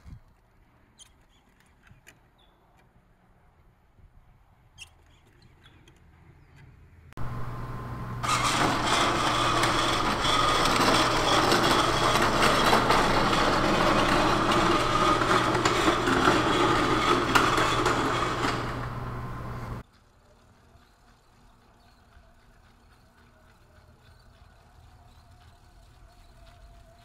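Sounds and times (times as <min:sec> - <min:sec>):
loud mechanical noise: 0:07.2 - 0:19.8
low hum: 0:07.2 - 0:19.8.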